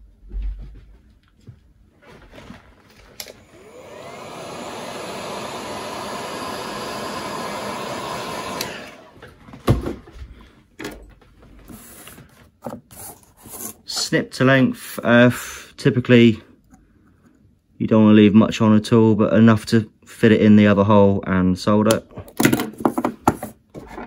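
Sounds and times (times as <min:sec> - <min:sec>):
heat gun fan whine: 0:03.0 - 0:09.3.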